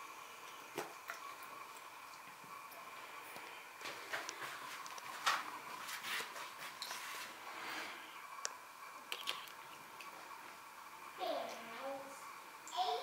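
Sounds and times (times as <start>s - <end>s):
faint steady hum: 0.0s - 13.0s
trickle of tap water: 0.4s - 5.4s, 8.4s - 10.2s.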